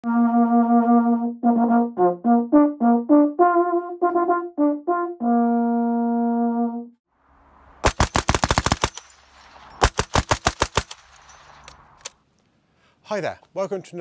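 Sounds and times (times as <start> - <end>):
solo brass melody: 0.0 - 7.1.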